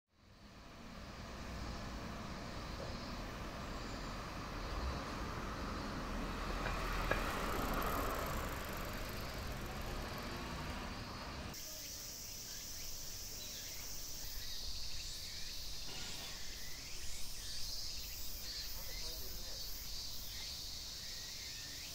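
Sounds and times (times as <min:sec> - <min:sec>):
road traffic rumble: 0:00.2 - 0:11.6
high-pitched insect chorus: 0:00.2 - 0:21.9.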